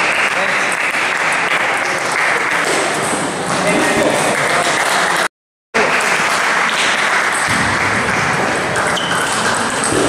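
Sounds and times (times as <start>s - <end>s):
table tennis balls clattering: 6.8s - 10.0s.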